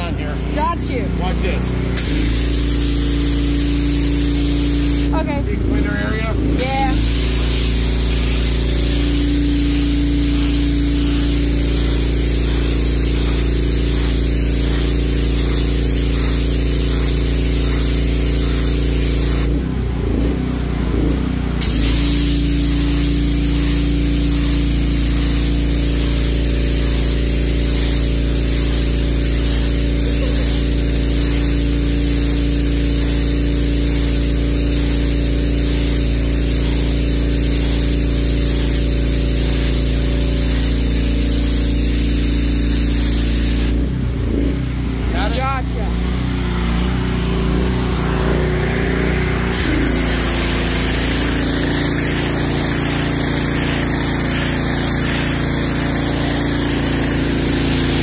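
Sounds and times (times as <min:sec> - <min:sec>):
water jet hissing on concrete: 0:00.0 - 0:19.6, 0:21.5 - 0:43.9, 0:44.9 - 0:58.0
pump motor humming: 0:46.0 - 0:58.0.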